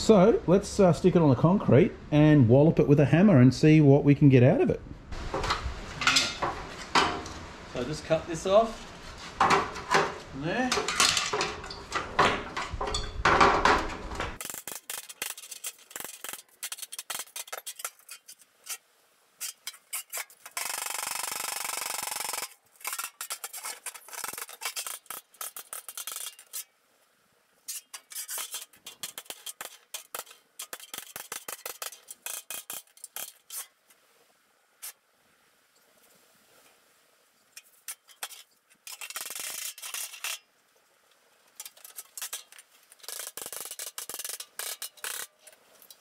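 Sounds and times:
metal clinks and clanks: 10.7s - 13.4s
metal scraping on concrete: 19.4s - 20.7s, 22.8s - 26.6s, 27.7s - 33.7s.

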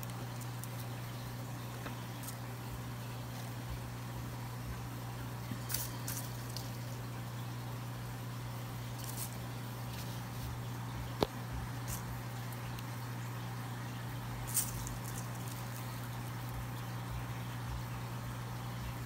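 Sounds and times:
faint rustles and clicks: 0.0s - 3.8s, 5.4s - 7.1s, 8.8s - 13.0s, 14.4s - 17.2s.

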